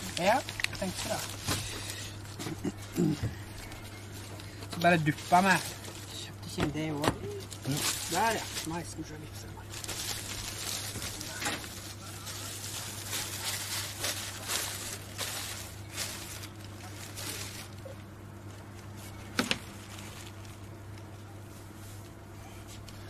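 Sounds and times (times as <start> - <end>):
plastic bags rustling: 0.0 - 22.9
steady low hum: 0.0 - 23.0.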